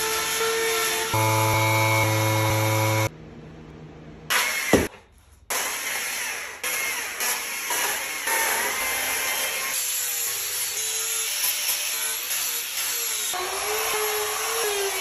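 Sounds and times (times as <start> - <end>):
power tool motor running: 1.1 - 3.1.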